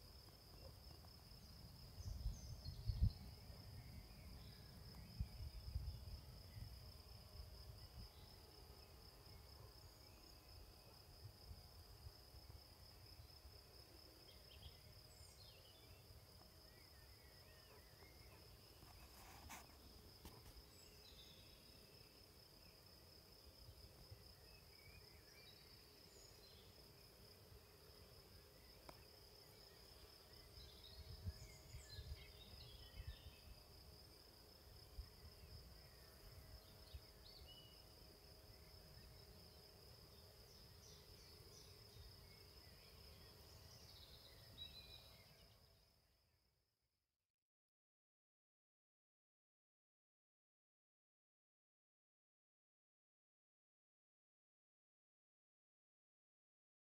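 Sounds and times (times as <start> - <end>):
high-pitched insect trill: 0.0 - 46.0
wind rumbling on microphone: 2.0 - 3.3.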